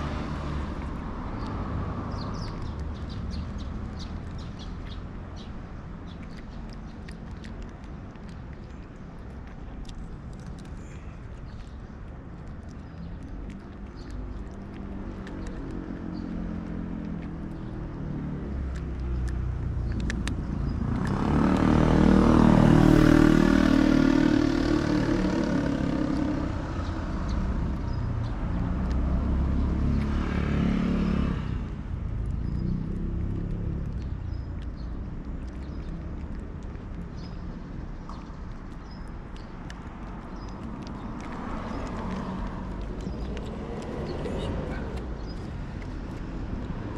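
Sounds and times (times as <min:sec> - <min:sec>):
cat crunching dry kibble: 0:00.0 - 0:22.9, 0:31.7 - 0:46.9
vehicles passing by: 0:00.0 - 0:46.9.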